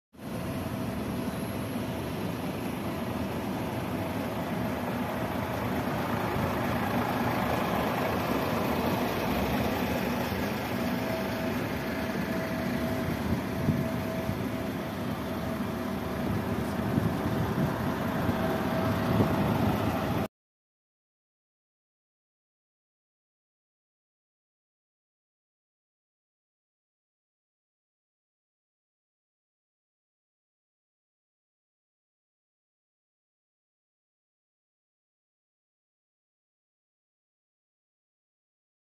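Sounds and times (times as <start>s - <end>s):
diesel truck engines idling: 0.2s - 20.3s.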